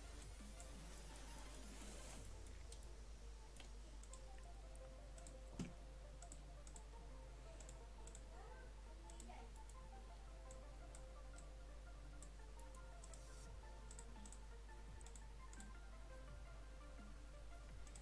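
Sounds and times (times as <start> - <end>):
mouse and keyboard clicking: 5.2 - 6.9.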